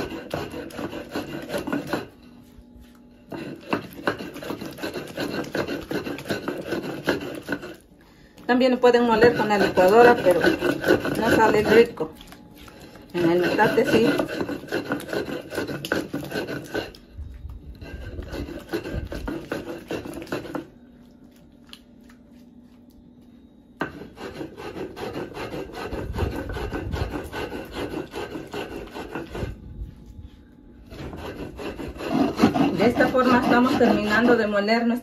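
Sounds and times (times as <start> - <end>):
stone grinding on stone: 0.0 - 2.3, 3.2 - 7.8, 8.7 - 17.1, 17.7 - 20.7, 23.8 - 29.6, 30.9 - 34.7.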